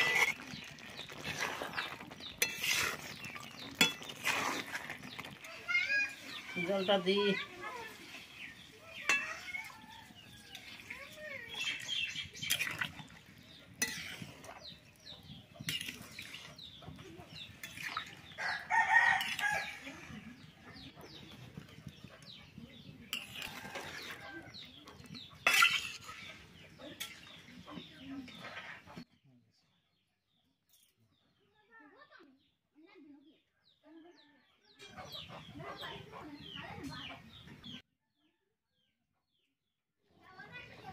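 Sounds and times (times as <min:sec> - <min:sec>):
chickens clucking: 0:00.0 - 0:29.1, 0:34.8 - 0:37.8.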